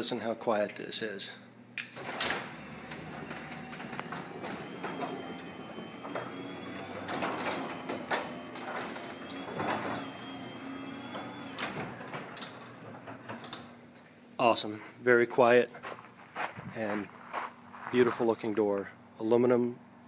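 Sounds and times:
garage door opener humming: 0:01.8 - 0:14.2
garage door clicks and rattles: 0:01.9 - 0:13.8.

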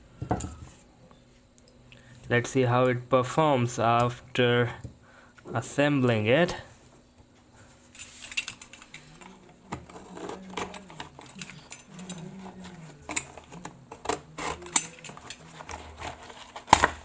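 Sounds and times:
cardboard clicks and crackles: 0:08.3 - 0:17.0
knife slicing packing tape: 0:14.1 - 0:17.0.

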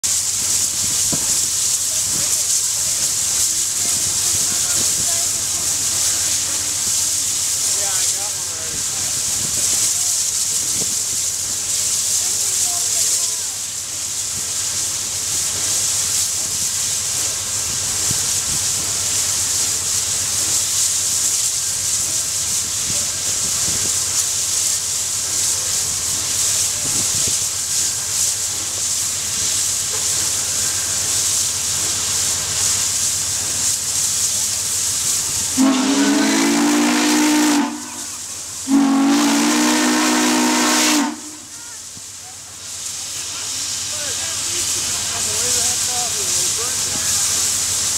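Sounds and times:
steam locomotive hissing: 0:00.0 - 0:47.9
chime steam whistle blasts: 0:35.6 - 0:41.6.

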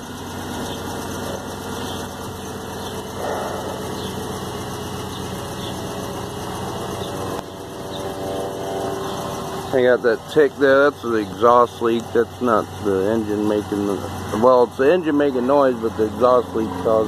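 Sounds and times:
engine idling: 0:00.0 - 0:17.0
engine ticking: 0:00.0 - 0:17.0.

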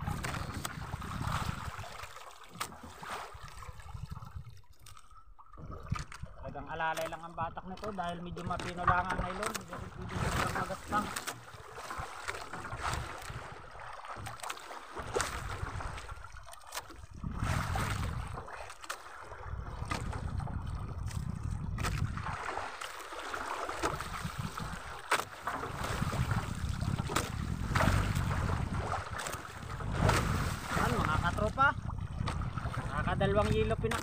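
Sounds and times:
wind buffeting microphone: 0:00.0 - 0:02.0, 0:03.4 - 0:04.7, 0:17.1 - 0:18.5, 0:19.5 - 0:22.6, 0:23.8 - 0:25.0, 0:25.6 - 0:34.0
water sloshing against boat hull: 0:00.0 - 0:34.0.

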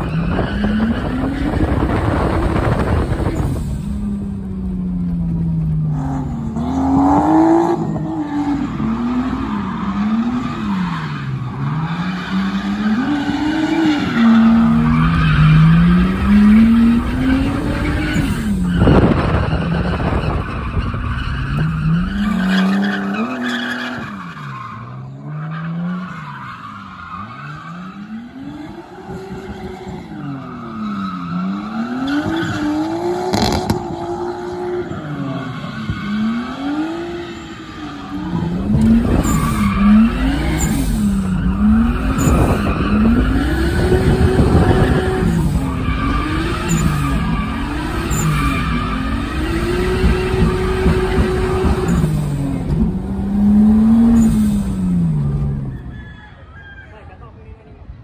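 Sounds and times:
car engine revving: 0:00.0 - 0:55.8
tyre squeal: 0:06.1 - 0:34.0, 0:34.6 - 0:52.2.

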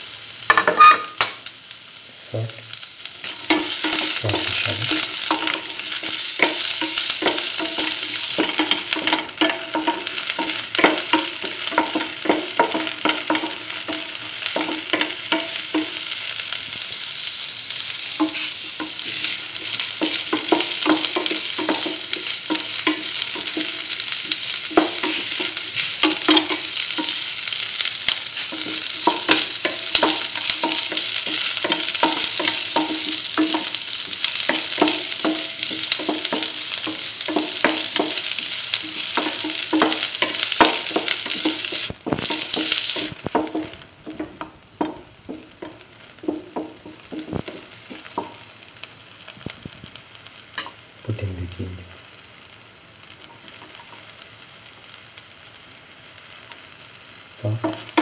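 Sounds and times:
shallots sizzling in hot oil: 0:00.0 - 0:58.0
utensil scraping a pan: 0:00.5 - 0:01.4.

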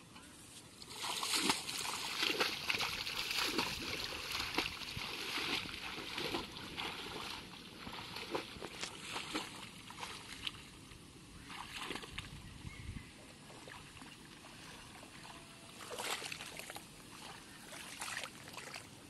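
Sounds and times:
footsteps splashing through water: 0:00.9 - 0:10.8, 0:11.4 - 0:12.4, 0:13.5 - 0:18.9.

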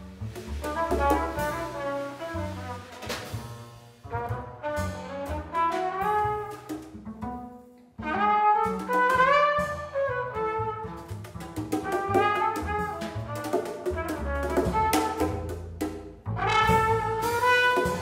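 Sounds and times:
double bass: 0:00.0 - 0:18.0
trumpet melody: 0:00.6 - 0:03.2, 0:04.1 - 0:06.7, 0:08.0 - 0:11.1, 0:11.8 - 0:15.5, 0:16.4 - 0:18.0.

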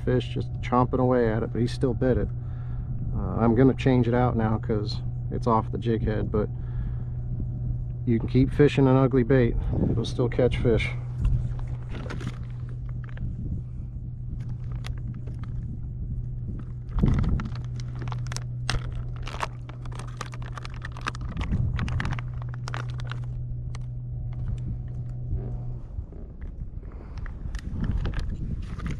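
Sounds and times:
steady low hum: 0:00.0 - 0:28.9
plastic bag rustling: 0:11.4 - 0:13.3, 0:14.4 - 0:15.7, 0:16.5 - 0:24.6
hands handling fishing tackle: 0:11.5 - 0:13.2, 0:16.7 - 0:23.9.

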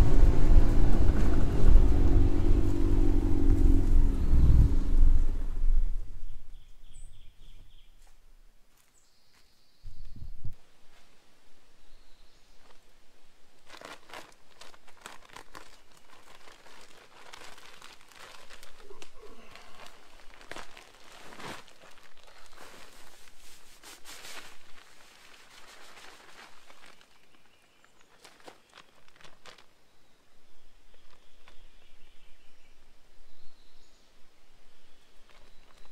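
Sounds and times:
feed sacks rustling and crinkling: 0:13.5 - 0:29.8, 0:35.1 - 0:35.9.

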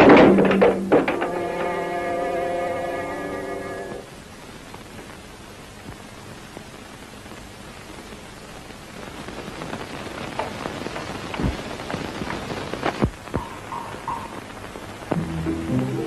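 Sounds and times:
film soundtrack hiss: 0:00.0 - 0:16.0
music with low bass notes: 0:13.4 - 0:16.0.

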